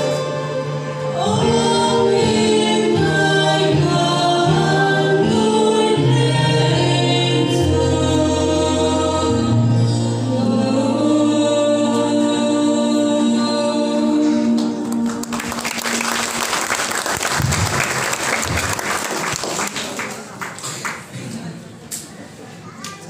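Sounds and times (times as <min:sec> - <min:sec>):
choir singing a hymn chord: 0:00.0 - 0:15.5
congregation applauding: 0:14.6 - 0:21.2.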